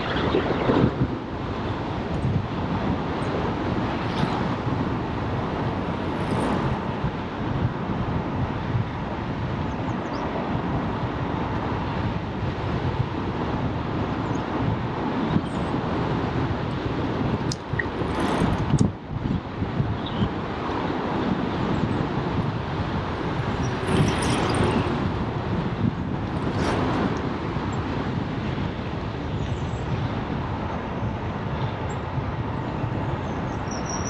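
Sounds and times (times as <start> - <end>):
rolling road noise: 0.0 - 34.0
wind rushing on microphone: 0.0 - 34.0.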